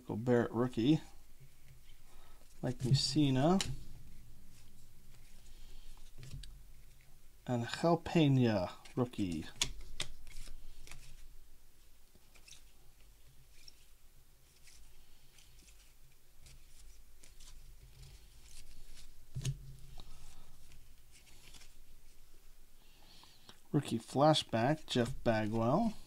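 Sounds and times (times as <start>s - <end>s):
cards sliding over one another: 8.8s - 11.3s, 14.5s - 22.2s.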